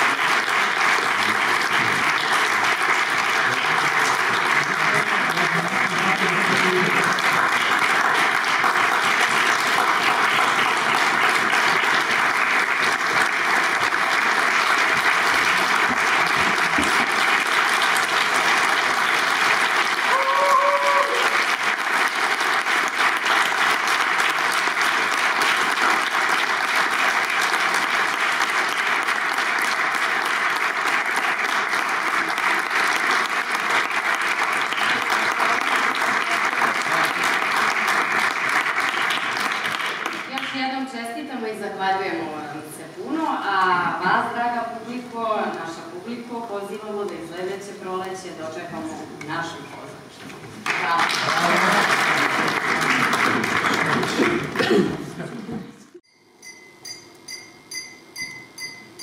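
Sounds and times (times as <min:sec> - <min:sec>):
audience applauding: 0:00.0 - 0:40.6, 0:50.6 - 0:55.2
pitched call from crowd: 0:20.0 - 0:21.4.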